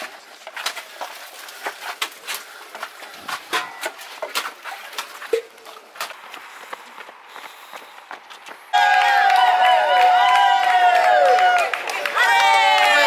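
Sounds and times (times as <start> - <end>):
runners footsteps: 0.0 - 13.0.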